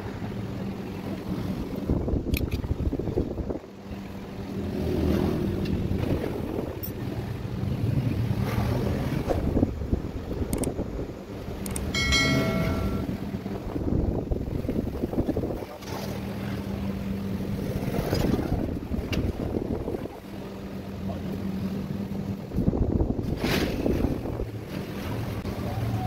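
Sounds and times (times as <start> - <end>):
wind buffeting microphone: 0.0 - 20.7, 22.0 - 25.5
metallic ring: 11.9 - 13.4.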